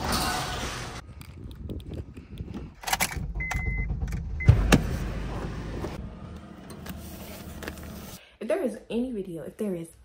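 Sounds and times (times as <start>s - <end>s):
car door shutting: 3.9s - 6.0s.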